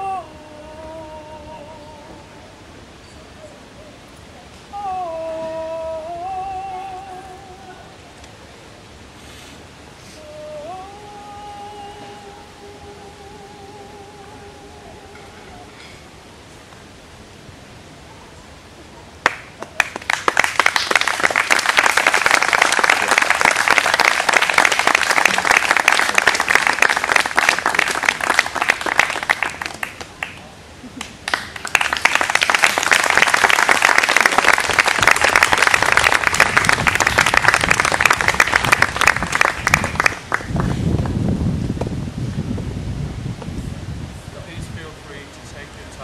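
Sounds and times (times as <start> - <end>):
audience applauding: 19.2 - 30.4, 31.0 - 41.2.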